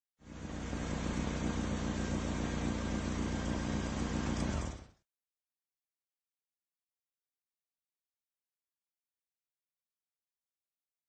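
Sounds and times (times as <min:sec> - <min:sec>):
engine idling: 0:00.2 - 0:05.0.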